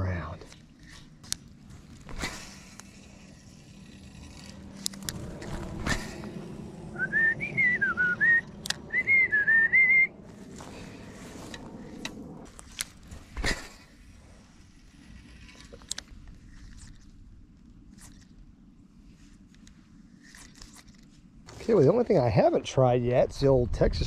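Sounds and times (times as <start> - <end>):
person whistling a tune: 7.0 - 10.1
sharp clicks: 8.4 - 9.0.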